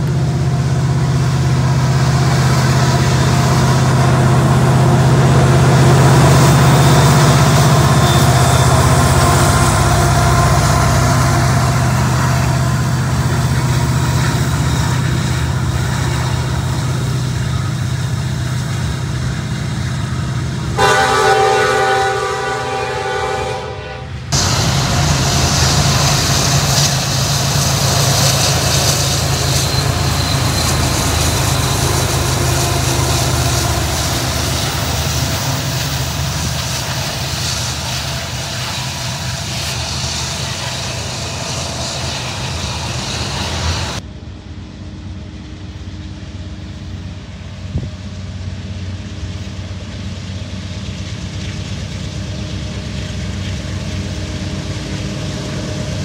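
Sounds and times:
freight train rumbling past: 0:00.0 - 0:56.0
locomotive horn: 0:06.8 - 0:13.0, 0:20.7 - 0:25.4.

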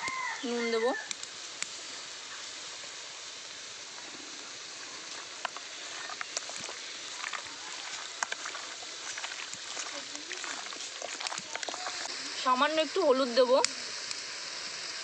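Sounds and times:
onions sizzling in oil: 0:00.0 - 0:15.0
hands mixing in steel bowl: 0:05.9 - 0:12.8.

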